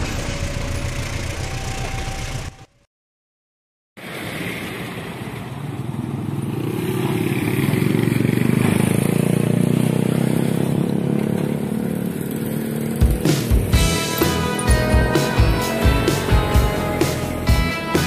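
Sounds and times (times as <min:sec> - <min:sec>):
motorcycle passing by: 0:04.0 - 0:17.8.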